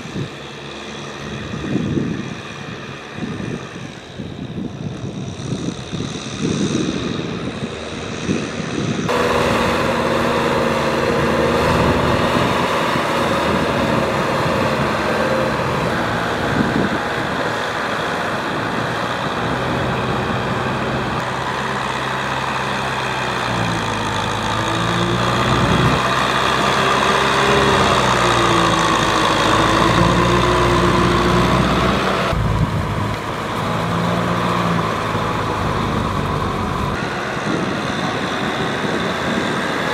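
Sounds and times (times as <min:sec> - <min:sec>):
tractor diesel engine under load: 0:00.0 - 0:39.9
rotary tiller churning mud: 0:09.1 - 0:39.9.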